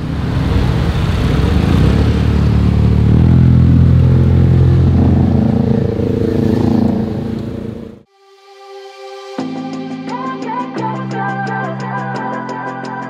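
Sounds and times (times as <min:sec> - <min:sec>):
vehicle engine revving: 0:00.0 - 0:08.1.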